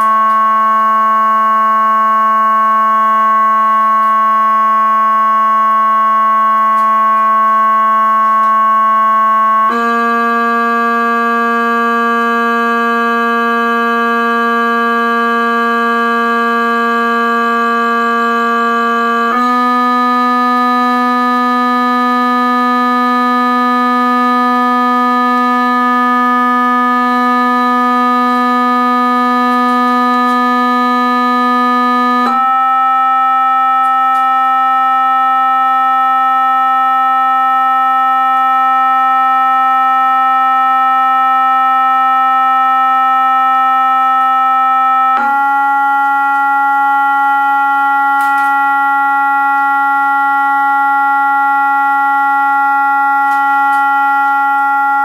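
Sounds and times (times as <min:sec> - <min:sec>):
buzzy electronic test tone: 0:00.0 - 0:55.0.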